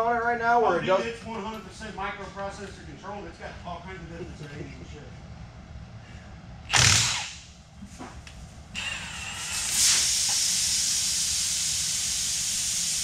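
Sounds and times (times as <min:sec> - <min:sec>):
cordless power tool running: 0:06.7 - 0:07.4, 0:08.8 - 0:10.4
loud steady hiss: 0:08.8 - 0:13.0.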